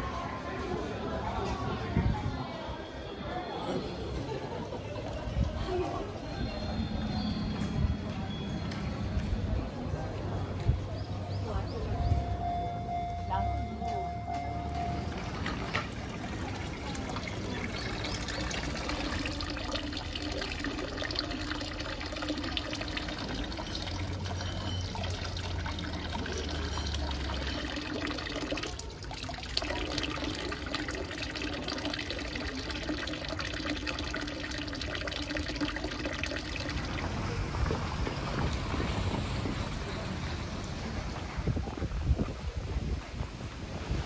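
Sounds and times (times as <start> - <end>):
water pouring into stone basin: 14.4 - 39.0.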